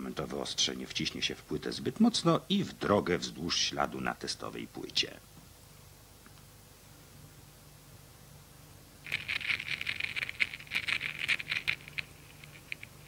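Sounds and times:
record stylus crackle and clicks: 9.1 - 13.0.

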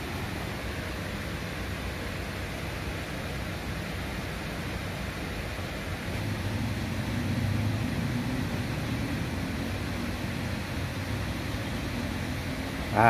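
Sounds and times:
rushing noise: 0.0 - 13.0
low motor hum: 6.1 - 13.0.

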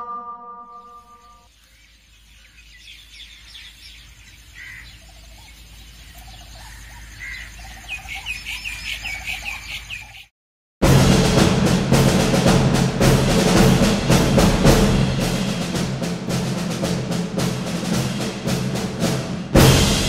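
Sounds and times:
birds chirping: 0.0 - 10.3.

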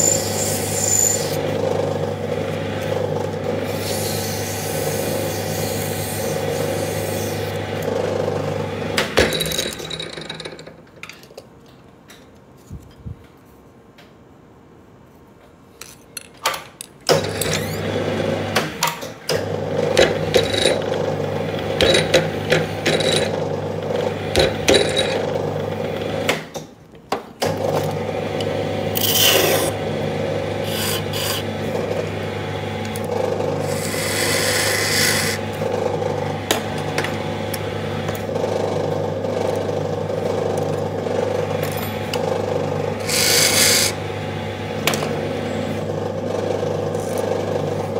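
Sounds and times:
wooden handle scraping spinning tool: 0.0 - 1.4, 29.0 - 29.7, 30.6 - 31.5, 33.6 - 35.4, 43.0 - 44.0
lathe motor humming: 0.0 - 9.0, 27.9 - 47.9.

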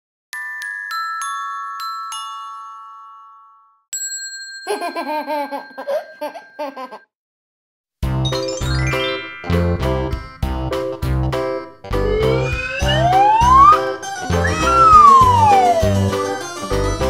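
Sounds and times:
glockenspiel notes: 0.4 - 7.0, 8.1 - 10.5.

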